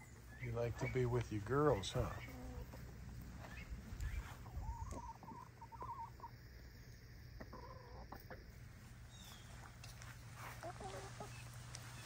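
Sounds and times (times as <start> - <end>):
poultry trilling: 0.0 - 9.7, 10.4 - 12.0.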